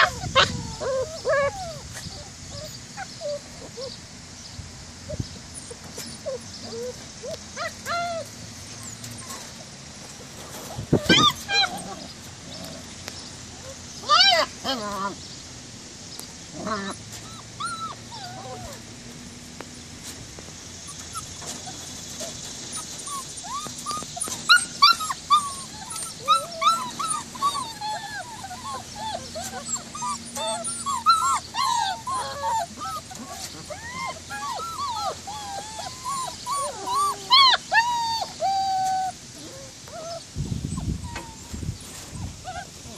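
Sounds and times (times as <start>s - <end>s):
puppy yelps: 0.0s - 1.8s, 11.0s - 12.0s, 13.6s - 15.2s, 16.7s - 18.7s, 22.7s - 41.4s, 42.2s - 42.9s
puppies whining: 0.0s - 4.0s, 5.0s - 15.2s, 16.5s - 19.4s, 20.7s - 42.9s.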